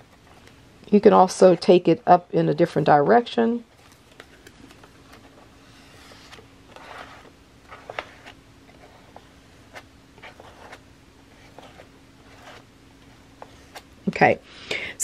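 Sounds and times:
steady low hum: 0:00.0 - 0:15.0
paint scraping on paper: 0:05.6 - 0:13.8.

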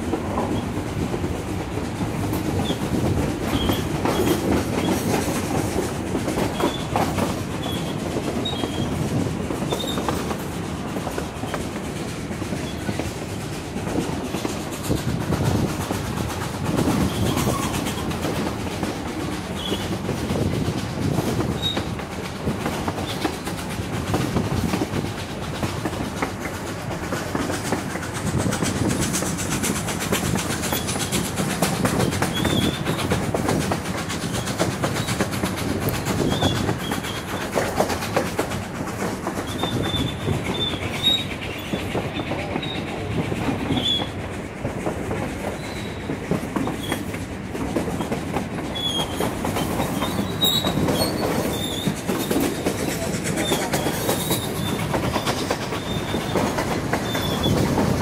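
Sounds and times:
train wheels clacking on rails: 0:00.0 - 0:58.0
high wheel squeaks: 0:02.6 - 0:05.2, 0:06.4 - 0:10.4, 0:16.9 - 0:18.5, 0:19.4 - 0:20.0, 0:21.3 - 0:22.1, 0:30.5 - 0:33.2, 0:36.0 - 0:37.7, 0:39.3 - 0:44.2, 0:45.4 - 0:47.2, 0:48.0 - 0:58.0.

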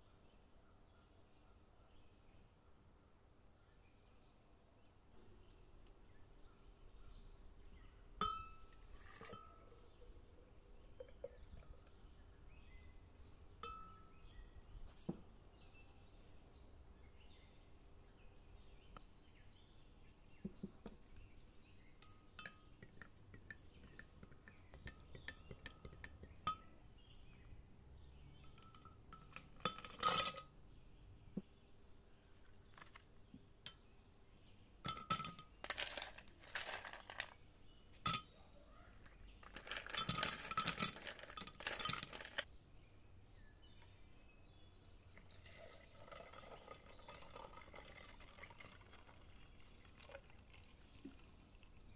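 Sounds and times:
glassware clinking: 0:08.2 - 0:09.6, 0:11.0 - 0:11.7, 0:13.6 - 0:14.2, 0:22.0 - 0:26.8, 0:28.4 - 0:30.5, 0:34.9 - 0:36.8, 0:38.0 - 0:38.3, 0:39.5 - 0:42.4
ice cubes clattering into glass pitcher: 0:34.9 - 0:37.4, 0:39.4 - 0:42.4.

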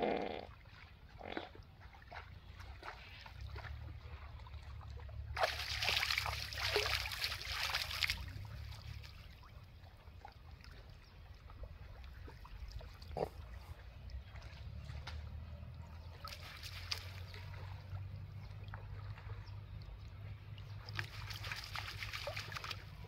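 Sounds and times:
water splashing and sloshing: 0:00.2 - 0:23.0
water trickling: 0:04.1 - 0:13.2, 0:15.5 - 0:23.0.

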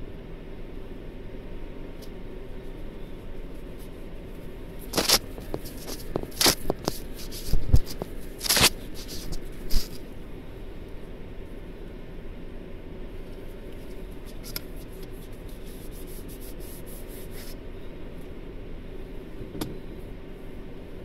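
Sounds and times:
steady low hum: 0:00.0 - 0:21.0
phone handling rustles and scrapes: 0:04.8 - 0:10.2, 0:13.7 - 0:17.6.

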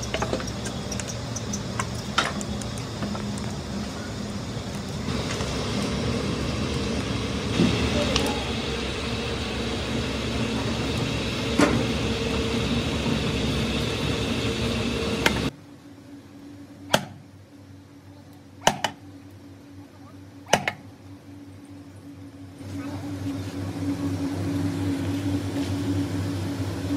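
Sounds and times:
drum furnace humming: 0:00.0 - 0:26.9.

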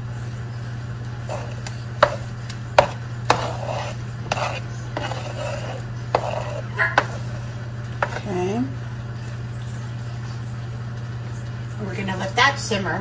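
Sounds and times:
ladle tapping on cutting board: 0:02.0 - 0:05.2, 0:06.2 - 0:07.3, 0:08.0 - 0:08.2.

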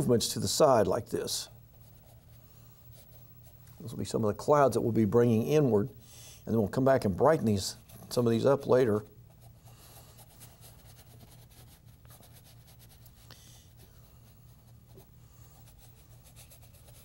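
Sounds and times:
low steady hum: 0:00.0 - 0:17.0
brush scrubbing paint on canvas: 0:09.3 - 0:17.0.

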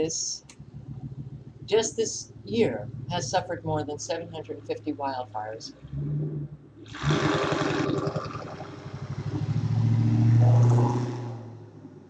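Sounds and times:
motor vehicle engine: 0:00.0 - 0:12.0.

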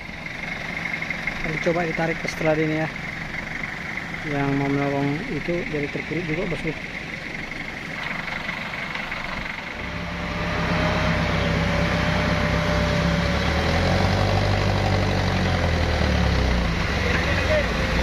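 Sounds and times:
truck engine revving under load: 0:06.3 - 0:18.0.

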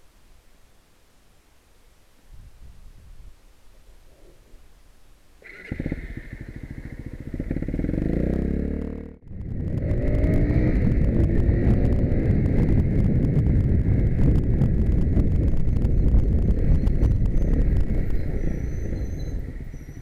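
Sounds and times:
wind noise: 0:02.2 - 0:03.5, 0:05.4 - 0:20.0
motorcycle engine starting and revving: 0:05.4 - 0:20.0.

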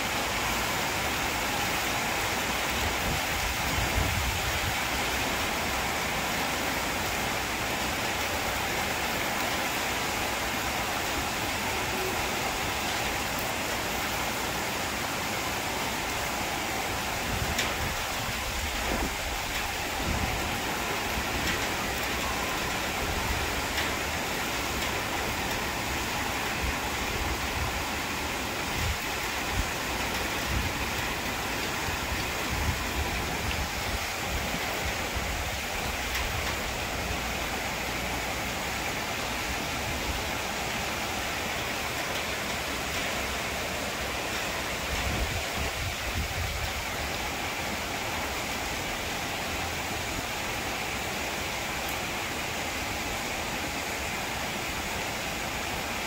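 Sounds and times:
rain on trees and metal roof: 0:00.0 - 0:56.0.

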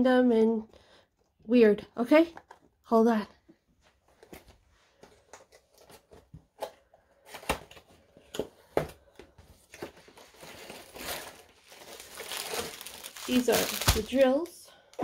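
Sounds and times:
packaging knocks and rustles: 0:05.2 - 0:14.5
plastic wrapping crinkling: 0:09.6 - 0:14.6.

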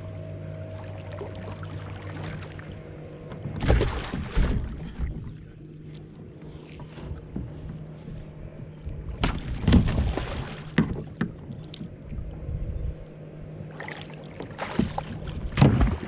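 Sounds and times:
steady low hum: 0:00.0 - 0:16.0
water splashing: 0:00.7 - 0:05.4, 0:09.2 - 0:11.9, 0:13.7 - 0:16.0.

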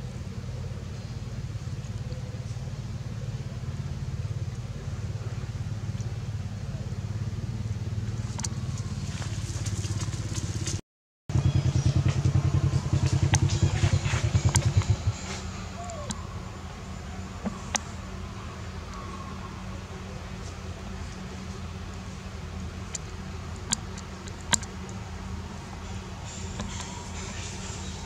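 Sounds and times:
small engine idling: 0:00.0 - 0:28.0
sharp clicks: 0:22.9 - 0:25.0.

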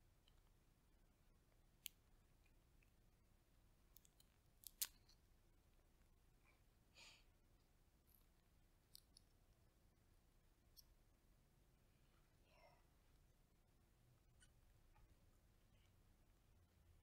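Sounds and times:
chestnut shells cracking: 0:04.0 - 0:05.1.

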